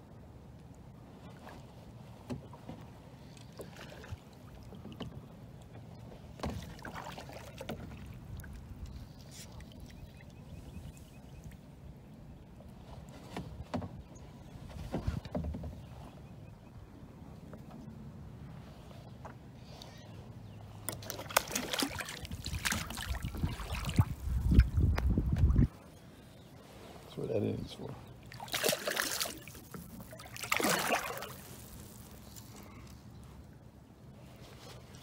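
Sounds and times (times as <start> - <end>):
water splashing around a kayak: 1.0 - 11.7, 20.8 - 33.1.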